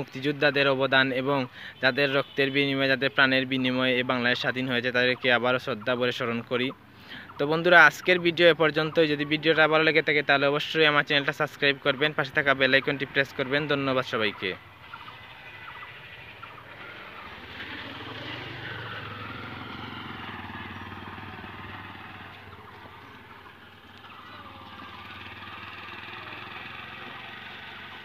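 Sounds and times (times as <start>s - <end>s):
vehicle engine running: 11.6s - 28.0s.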